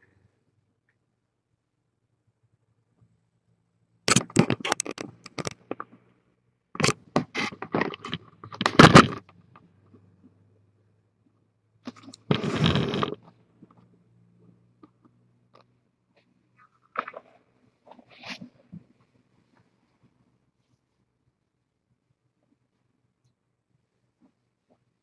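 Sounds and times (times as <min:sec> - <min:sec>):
webcam handling clicks and scrapes: 0:04.1 - 0:05.9, 0:06.8 - 0:09.3, 0:11.9 - 0:13.3
rustling scrape: 0:06.8 - 0:09.2, 0:11.9 - 0:13.4, 0:16.6 - 0:18.8.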